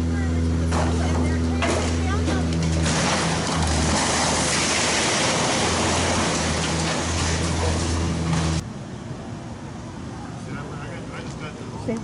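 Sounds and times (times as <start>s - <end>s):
diesel engine running: 0.0s - 8.6s.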